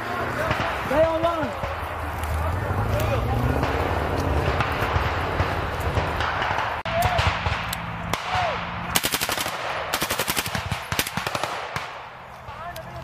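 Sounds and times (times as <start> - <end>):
gunfire shots and bursts: 0.0 - 2.2, 3.4 - 13.0
rushing noise of people moving: 0.0 - 9.0.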